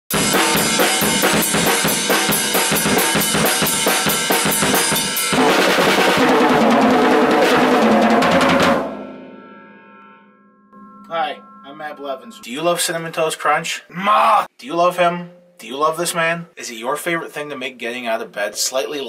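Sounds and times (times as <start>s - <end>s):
washing cymbals: 0.1s - 9.0s, 10.8s - 13.5s
drum kit played with sticks: 0.1s - 9.7s.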